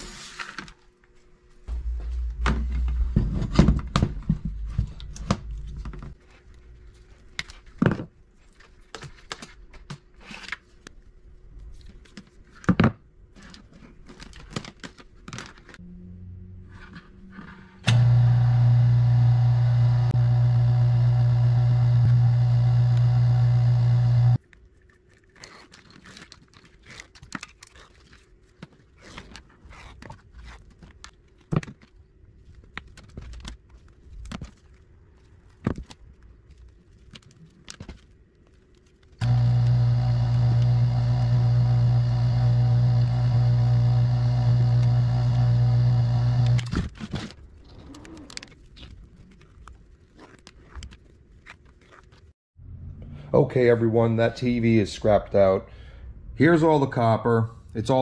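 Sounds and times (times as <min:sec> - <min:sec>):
wire-stripping machine humming: 0:17.8 - 0:24.4, 0:39.2 - 0:46.8
wire being handled: 0:24.4 - 0:39.2.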